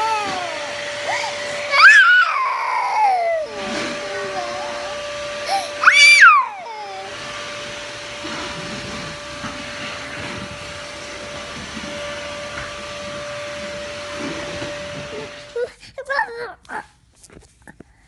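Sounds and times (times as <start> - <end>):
toddler crying: 0.0 - 7.3.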